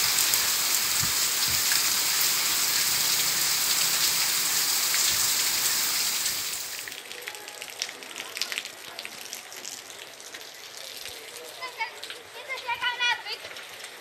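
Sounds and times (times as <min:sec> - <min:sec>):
heavy rain pouring: 0:00.0 - 0:14.0.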